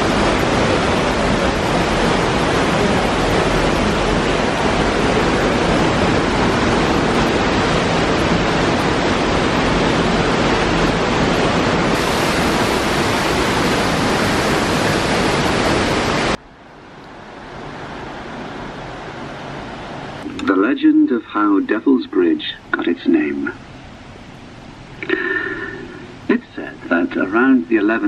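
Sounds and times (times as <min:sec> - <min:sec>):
waterfall and river rushing: 0:00.0 - 0:28.0.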